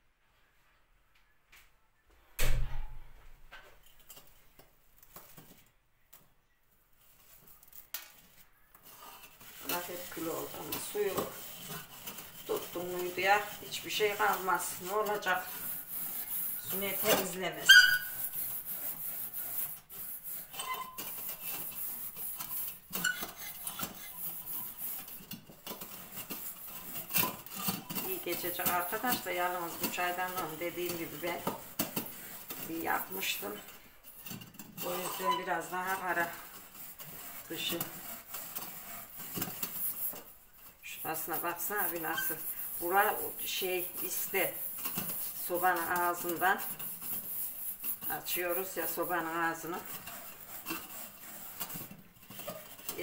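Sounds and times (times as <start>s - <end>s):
loud thump: 2.4s - 3.2s
scouring metal teapot by hand: 8.8s - 53.0s.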